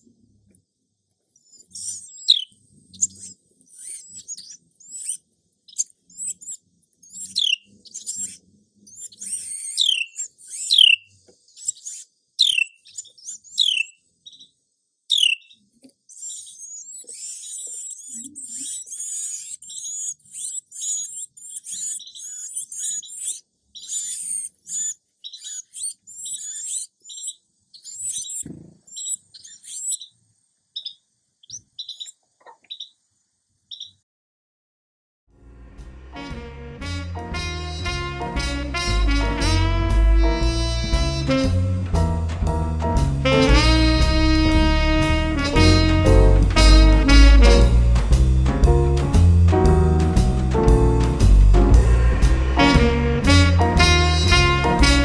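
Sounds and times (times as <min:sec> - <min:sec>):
nestling birds begging chirps: 0:01.4 - 0:33.0, 0:33.7 - 0:34.0, 0:36.2 - 0:55.0.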